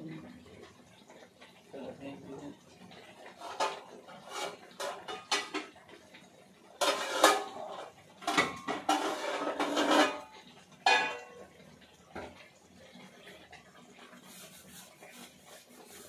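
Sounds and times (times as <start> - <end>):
metal plates and utensils clattering: 3.3 - 5.9, 6.8 - 11.5.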